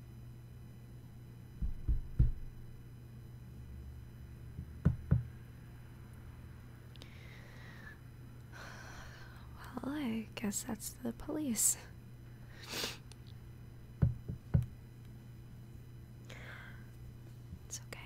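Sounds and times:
low steady hum: 0:00.0 - 0:18.0
knocking on a door: 0:01.6 - 0:02.5, 0:04.6 - 0:05.3, 0:14.0 - 0:14.7.

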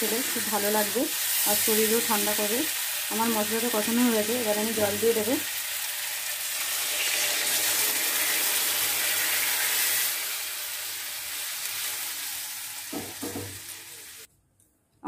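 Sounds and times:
water sizzling in hot oil: 0:00.0 - 0:14.3.

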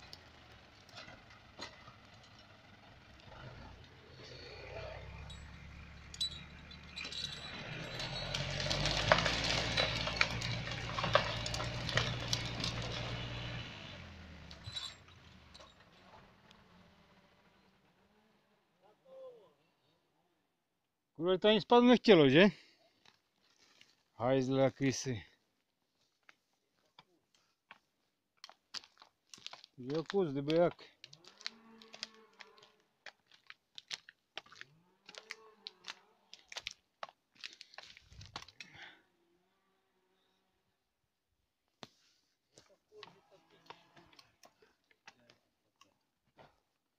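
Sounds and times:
footsteps on forest floor: 0:27.6 - 0:38.6
twigs snapping: 0:28.4 - 0:38.6.

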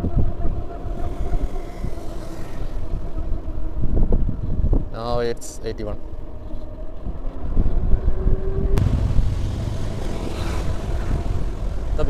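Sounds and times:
wind rumbling on microphone: 0:00.0 - 0:12.0
scooter tyre noise: 0:08.6 - 0:12.0.

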